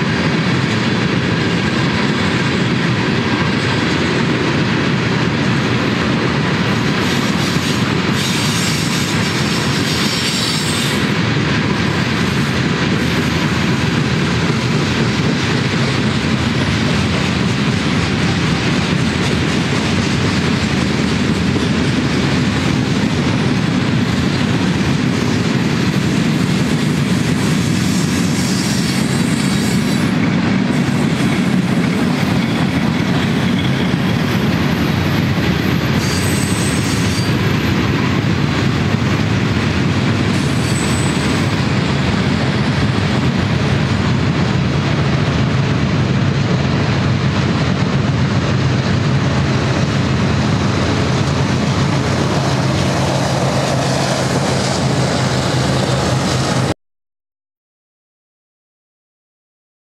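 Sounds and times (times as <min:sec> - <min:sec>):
freight train wheels clattering: 0:00.0 - 0:56.7
diesel locomotive engine drone: 0:00.0 - 0:56.8
high wheel squeals: 0:35.8 - 0:37.7, 0:40.4 - 0:41.5.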